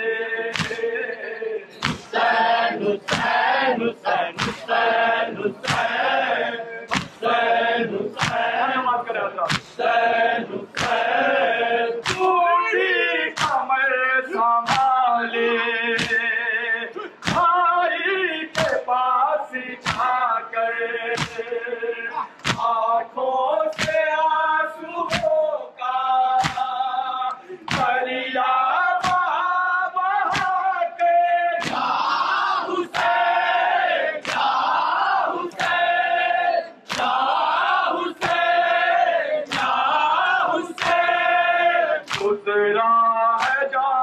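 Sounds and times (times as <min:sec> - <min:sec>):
men chanting a lament: 0:00.0 - 0:44.0
hands slapping chests: 0:00.5 - 0:00.9, 0:01.7 - 0:05.0, 0:05.6 - 0:07.4, 0:08.1 - 0:08.6, 0:09.4 - 0:09.8, 0:10.7 - 0:12.4, 0:13.3 - 0:13.7, 0:14.6 - 0:15.0, 0:15.9 - 0:16.3, 0:17.2 - 0:17.6, 0:18.5 - 0:18.9, 0:19.8 - 0:20.2, 0:21.1 - 0:21.6, 0:22.2 - 0:22.8, 0:23.6 - 0:24.1, 0:25.1 - 0:25.4, 0:26.3 - 0:29.4, 0:30.2 - 0:42.4, 0:43.4 - 0:43.7.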